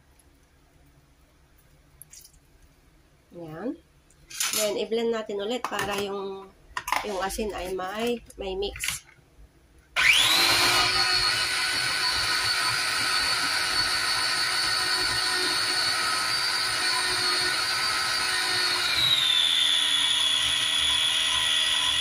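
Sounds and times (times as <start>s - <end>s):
food processor motor whining: 10.0s - 22.0s.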